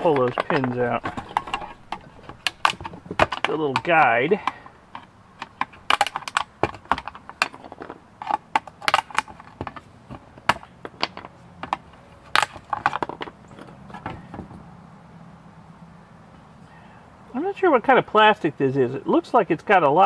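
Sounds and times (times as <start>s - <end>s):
plastic and metal clicks and snaps: 0.0s - 9.8s.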